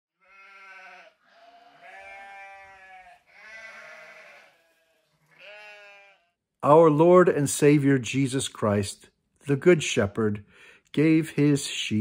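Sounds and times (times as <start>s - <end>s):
sheep bleating: 0.2s - 6.4s.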